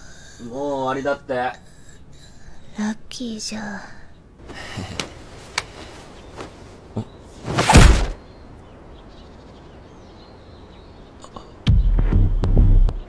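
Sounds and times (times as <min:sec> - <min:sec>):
low background hum: 0:00.0 - 0:11.6
loud thud: 0:07.5 - 0:08.2.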